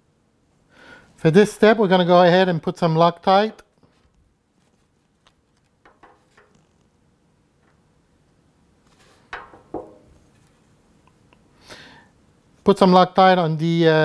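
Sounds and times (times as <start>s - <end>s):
faint clicks and rustles: 3.8s - 7.0s.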